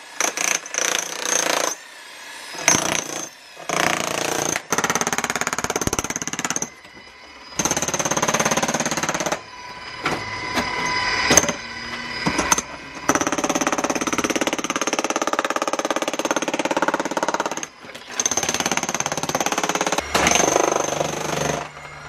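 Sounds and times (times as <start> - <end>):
demolition hammer chipping concrete: 0.2 - 1.8, 2.6 - 6.8, 7.6 - 9.4, 12.3 - 21.8.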